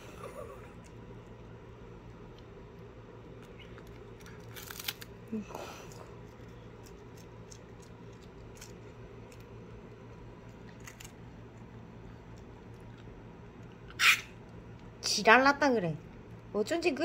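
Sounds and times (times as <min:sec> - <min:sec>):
cat chewing with crunching clicks: 0:00.8 - 0:05.1, 0:05.9 - 0:13.8.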